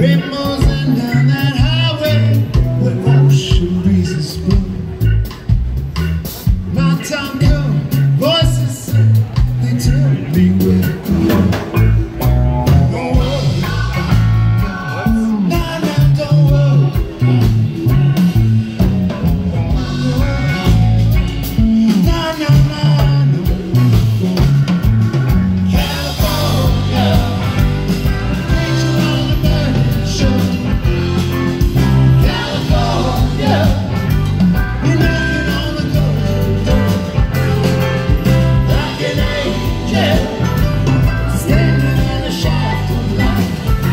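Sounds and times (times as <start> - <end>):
drum kit: 0.0 - 43.9
electric guitars: 0.0 - 43.9
keyboard: 0.0 - 43.9
person singing: 12.6 - 18.3, 25.7 - 37.3, 38.2 - 43.9.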